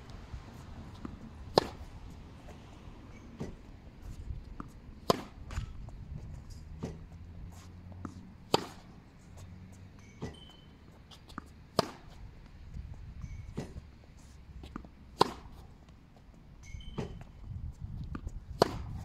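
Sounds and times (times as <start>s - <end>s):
racket striking tennis ball: 0.6s - 3.7s, 4.6s - 9.1s, 10.0s - 12.3s, 13.2s - 13.9s, 14.6s - 15.8s, 16.6s - 17.3s, 18.1s - 19.0s.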